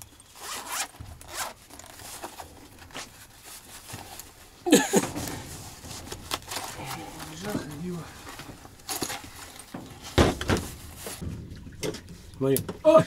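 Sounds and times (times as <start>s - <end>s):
zipper rasping open: 0.4s - 3.0s.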